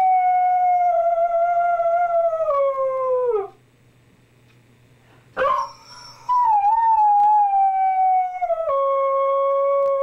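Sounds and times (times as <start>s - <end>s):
dog rising cry: 5.4s - 6.6s
dog howling: 5.4s - 10.0s.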